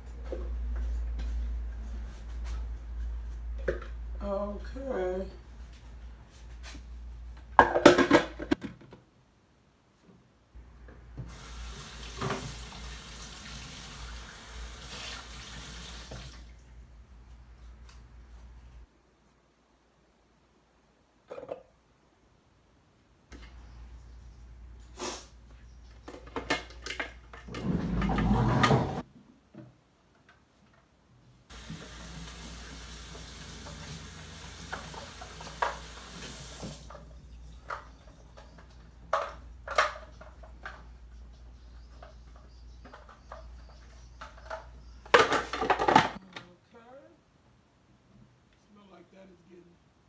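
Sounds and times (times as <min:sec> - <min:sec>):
tap running: 0:31.5 - 0:37.1.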